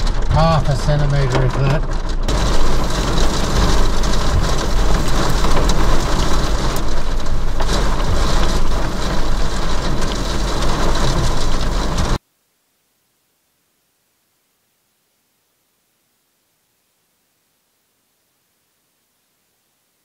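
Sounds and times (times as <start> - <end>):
heavy rain lashing a car: 0.0 - 12.2
small hail ticking: 0.0 - 12.2
steady low rumble: 0.0 - 12.2.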